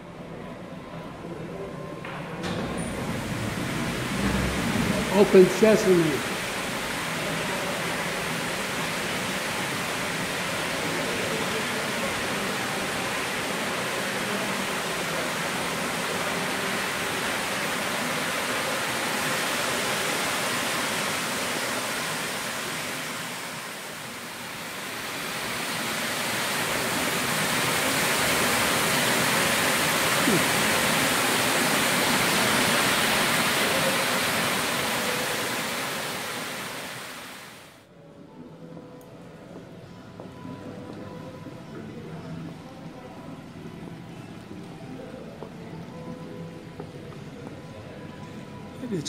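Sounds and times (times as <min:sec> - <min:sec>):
fountain water splashing: 0:02.6 - 0:37.8.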